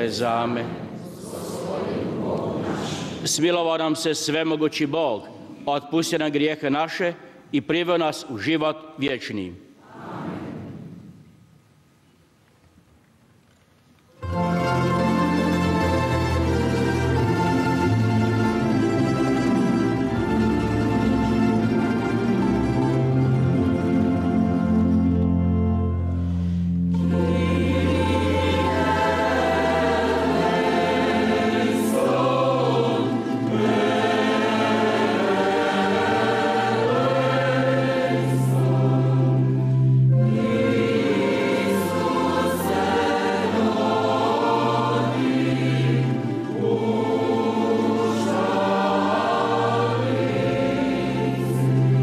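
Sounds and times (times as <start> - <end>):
choir singing: 0.0 - 3.8, 9.8 - 11.1, 14.2 - 25.6, 26.8 - 52.0
string orchestra playing: 14.2 - 52.0.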